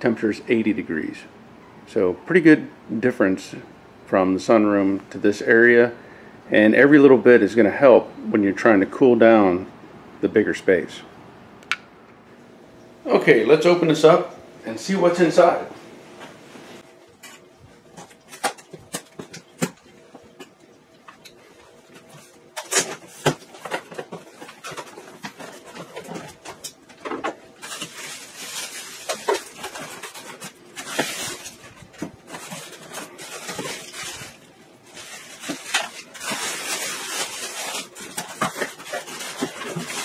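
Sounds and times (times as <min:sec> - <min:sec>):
plastic bag and foam crinkling: 0:21.2 - 0:40.0.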